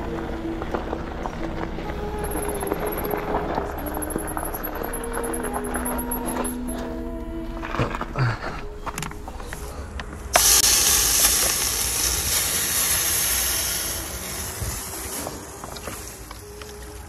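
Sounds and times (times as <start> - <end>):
bike tyres hissing on loose dirt: 10.3 - 17.0.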